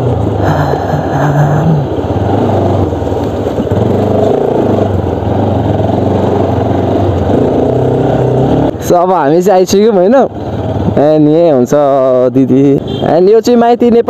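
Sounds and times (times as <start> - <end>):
road and wind noise: 0.0 - 14.0
motorcycle engine at low revs: 1.8 - 9.4.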